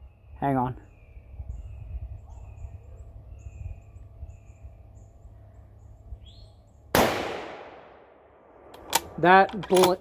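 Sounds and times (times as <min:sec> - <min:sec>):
birds chirping: 0:00.0 - 0:07.0
low drawn-out bird notes: 0:00.0 - 0:07.0
steady low rumble: 0:00.0 - 0:09.6.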